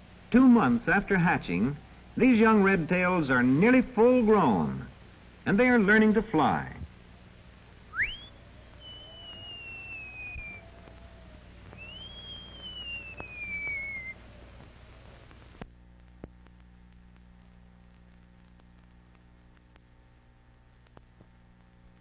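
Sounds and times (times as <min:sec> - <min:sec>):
film soundtrack hum: 0:00.0 - 0:22.0
high whistled calls: 0:07.9 - 0:14.3.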